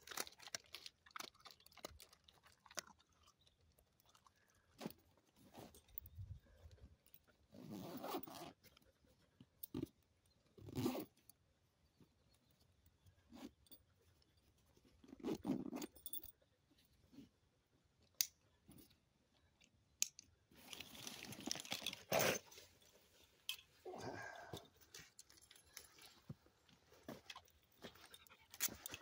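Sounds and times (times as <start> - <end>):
rustling and crunching of gear: 0.0 - 29.0.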